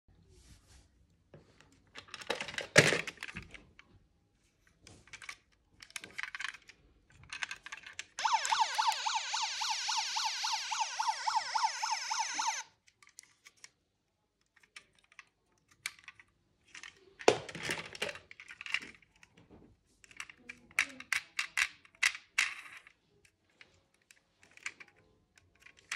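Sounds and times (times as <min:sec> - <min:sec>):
toy cars clattering on plastic: 0:01.9 - 0:03.8, 0:04.6 - 0:08.2, 0:14.4 - 0:25.9
toy siren yelping: 0:08.2 - 0:12.6.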